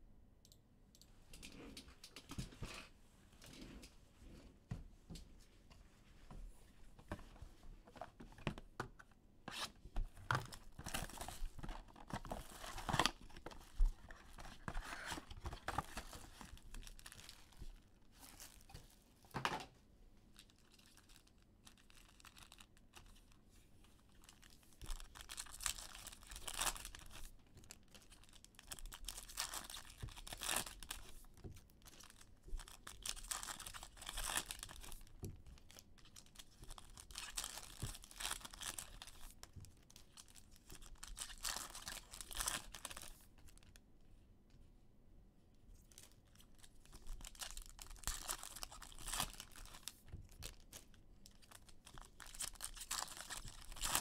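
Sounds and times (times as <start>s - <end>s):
foil wrappers crinkling and tearing: 20.4s - 23.3s, 24.2s - 39.4s, 40.0s - 43.6s, 45.9s - 54.0s.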